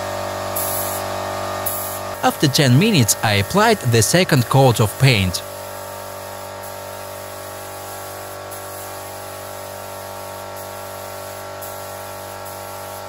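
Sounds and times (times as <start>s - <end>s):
spray gun hissing: 10.6s - 13.0s.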